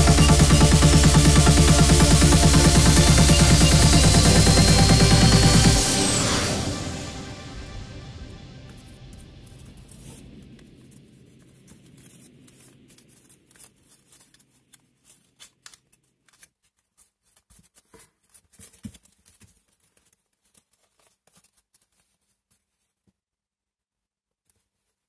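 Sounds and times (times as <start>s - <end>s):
background music: 0.0s - 10.6s
paper crinkling and rustling: 8.7s - 23.2s.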